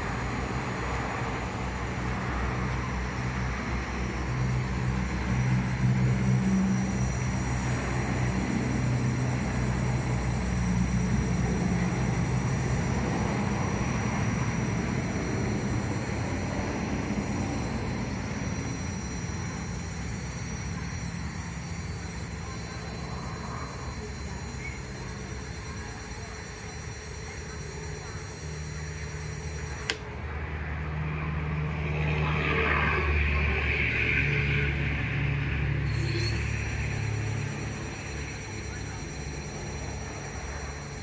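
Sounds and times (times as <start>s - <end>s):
electric hub motor whirring: 0.0s - 41.0s.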